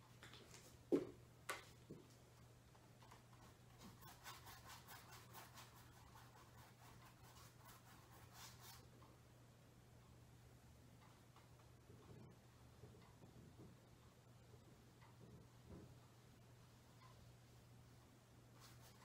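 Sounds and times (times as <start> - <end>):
low steady hum: 0.0 - 19.0
paintbrush brushing on canvas: 3.0 - 8.9, 18.5 - 19.0.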